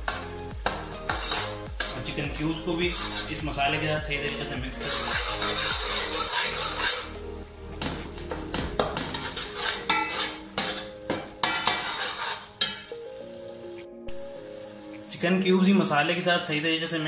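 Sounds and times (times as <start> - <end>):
spices frying in oil: 0.0 - 17.0
metal spatula scraping a pot: 0.1 - 3.8, 4.7 - 7.2, 7.8 - 13.0.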